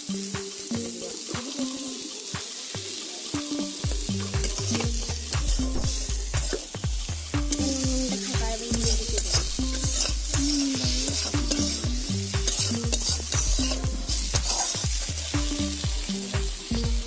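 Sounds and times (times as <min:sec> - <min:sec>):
fish sizzling in oil: 0:00.0 - 0:17.0
metal spatula scraping pan: 0:08.1 - 0:11.8, 0:12.4 - 0:15.3.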